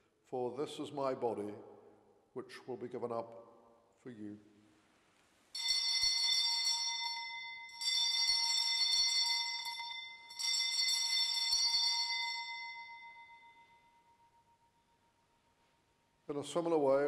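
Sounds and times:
altar bells ringing: 5.6 - 15.1.

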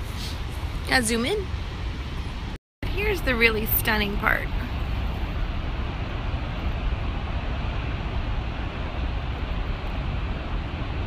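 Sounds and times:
heavy ocean surf: 0.0 - 11.0
wind rumbling on microphone: 0.0 - 11.0.

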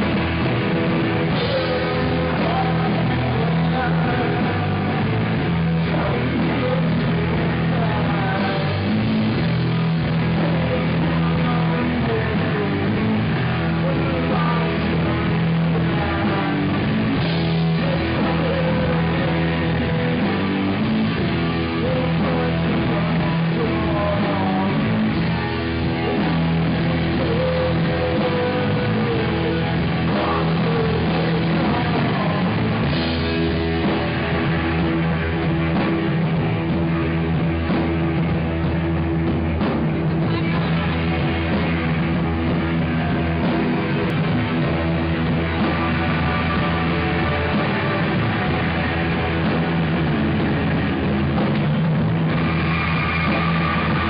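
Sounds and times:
rock band playing live: 0.0 - 54.0.

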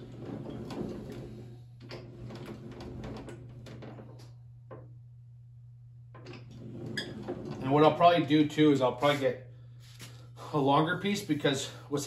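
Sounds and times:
hand-cranked slip roll creaking: 0.0 - 4.3.

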